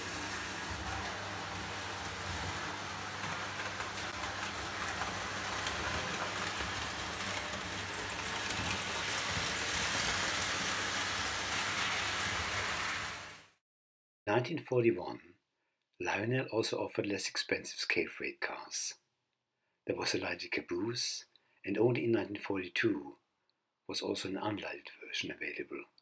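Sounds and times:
toy train rumble and clatter: 0.0 - 13.5.

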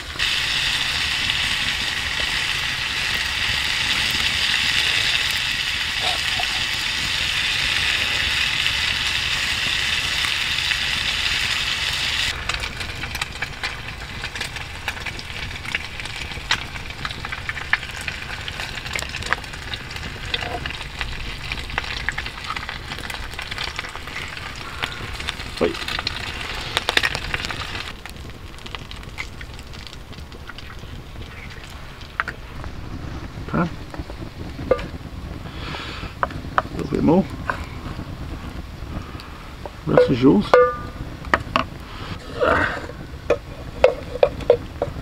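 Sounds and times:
gas hissing from metal tin: 0.0 - 16.2, 32.3 - 45.0
campfire crackling and popping: 0.0 - 45.0.

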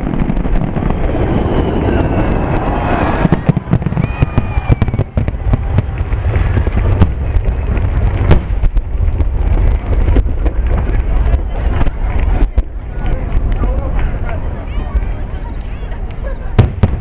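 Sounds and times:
low rumble: 0.0 - 15.4
fireworks bangs and crackles: 0.0 - 17.0
firework whistle: 0.8 - 5.8.

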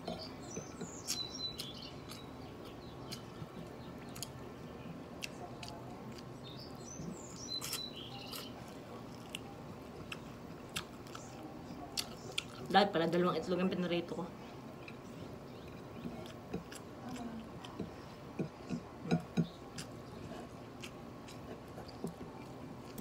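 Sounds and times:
person chewing food: 0.0 - 4.4, 7.5 - 11.3, 11.9 - 12.7, 14.7 - 23.0
bird chirping: 0.0 - 5.0, 6.4 - 8.6.

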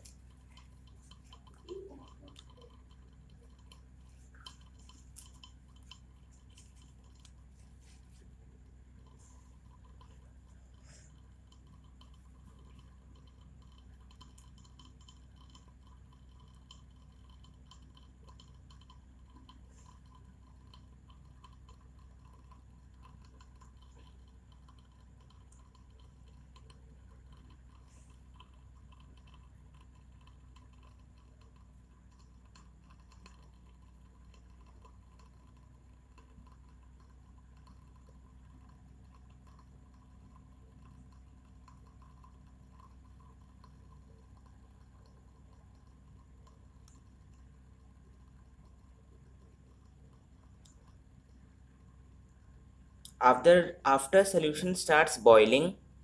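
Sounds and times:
faint ticks: 0.0 - 54.8
low room hum: 0.0 - 56.0.

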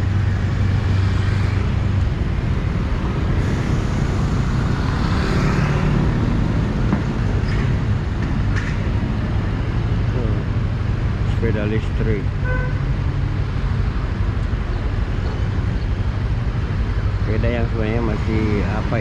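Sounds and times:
town traffic: 0.0 - 19.0
wind and road noise: 0.0 - 19.0.

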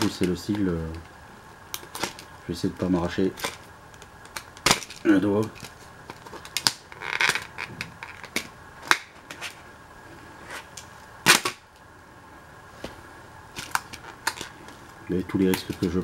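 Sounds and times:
plastic packaging clicks and crackles: 3.3 - 9.6, 13.6 - 14.6
plastic packaging snap: 3.4 - 9.3, 10.8 - 11.8.

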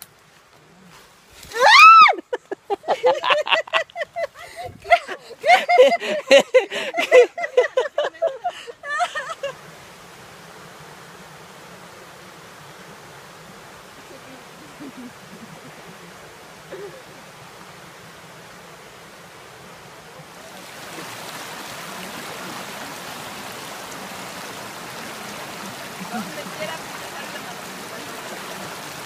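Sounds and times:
stream running over rocks: 0.0 - 29.0.

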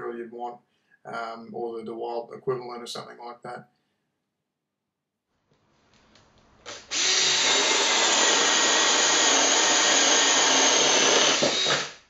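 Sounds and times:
cordless drill boring into wood: 6.7 - 12.0.

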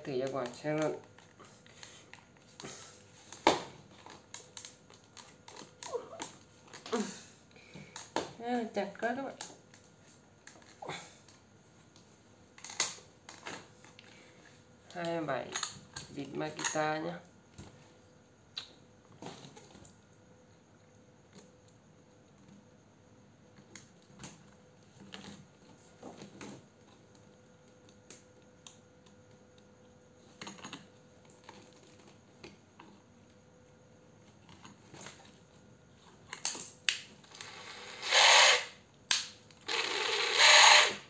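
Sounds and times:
impact driver running: 37.4 - 38.7, 39.6 - 41.0.

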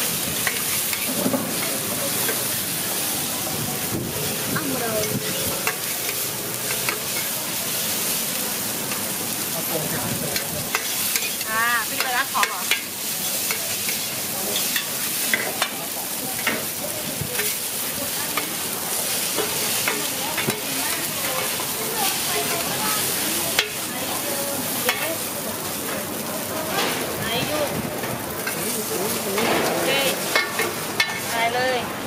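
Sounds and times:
noodles sizzling on a griddle: 0.0 - 32.0
metal utensils scraping a pan: 0.3 - 2.6, 4.4 - 7.8, 10.3 - 16.8, 17.4 - 23.9, 24.6 - 25.3, 26.6 - 31.5.

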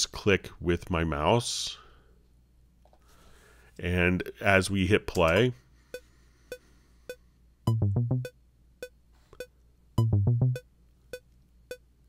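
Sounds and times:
short low synth notes: 7.7 - 8.3, 10.0 - 10.6.

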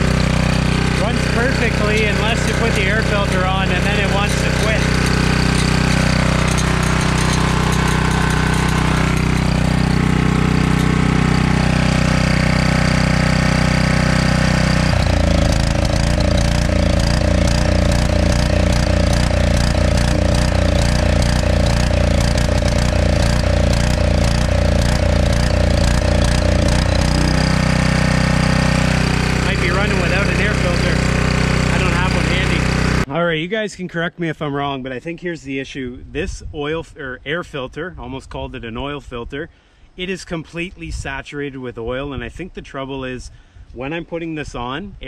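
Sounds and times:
generator engine running unevenly: 0.0 - 33.1.

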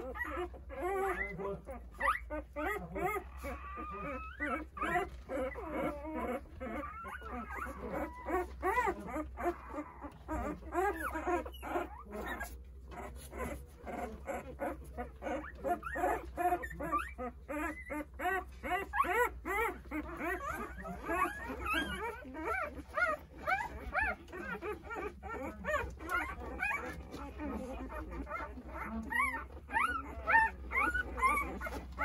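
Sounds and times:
puppies whimpering: 0.0 - 32.0.

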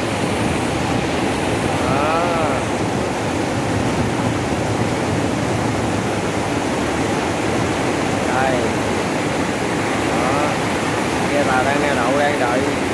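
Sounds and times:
fast-flowing water rushing: 0.0 - 12.9.

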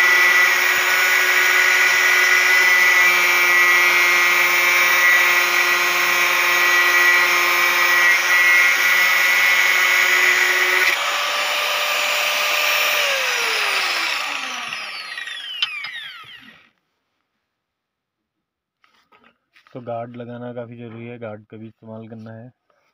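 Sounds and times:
angle grinder cutting steel: 0.0 - 16.7
grinder whine spinning down: 0.0 - 16.7.

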